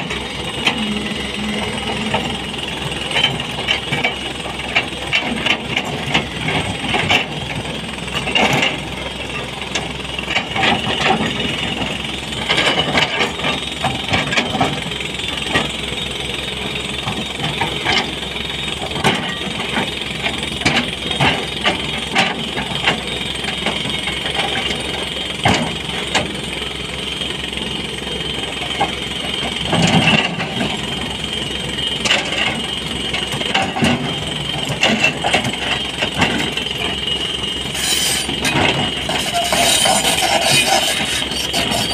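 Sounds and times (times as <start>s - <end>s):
excavator diesel engine running: 0.0s - 41.9s
bucket clanking and scraping on stone: 37.8s - 41.9s.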